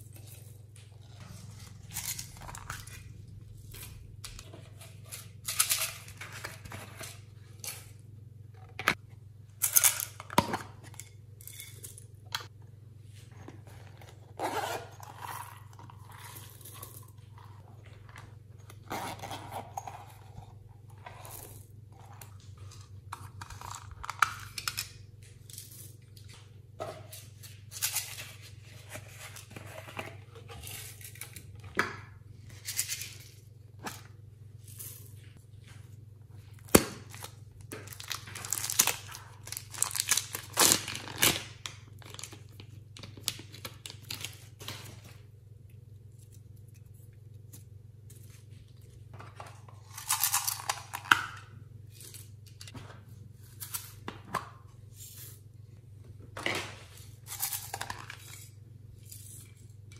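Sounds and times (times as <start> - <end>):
plastic bag crinkling: 37.8 - 41.4.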